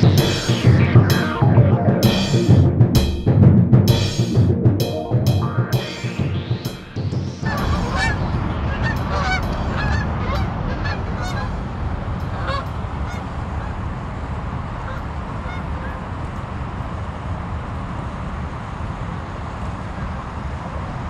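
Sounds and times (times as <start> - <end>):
steady low rumble: 0.0 - 21.0
geese honking: 5.4 - 13.8, 14.8 - 16.0.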